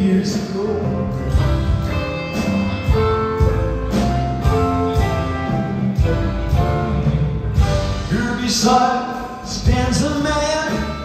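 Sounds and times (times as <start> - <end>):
electric guitar: 0.0 - 8.2
rock band with orchestra: 0.0 - 11.0.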